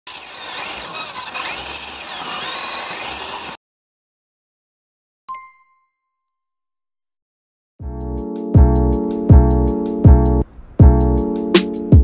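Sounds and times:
toy truck electric motor whining: 0.1s - 3.6s
bright ding: 5.3s - 6.6s.

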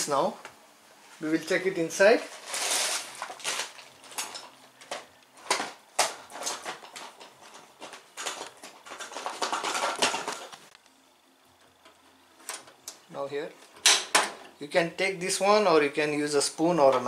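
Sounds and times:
small hard objects clinking: 2.3s - 5.6s.

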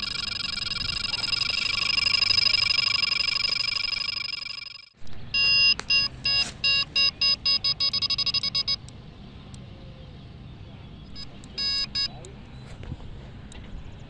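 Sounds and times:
warbling electronic tone: 0.0s - 5.6s
bite alarm beeping: 0.0s - 8.9s, 11.1s - 12.3s.

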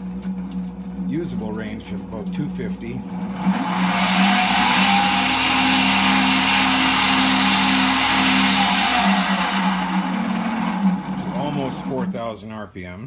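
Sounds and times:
motor whining and whirring: 3.1s - 12.1s.

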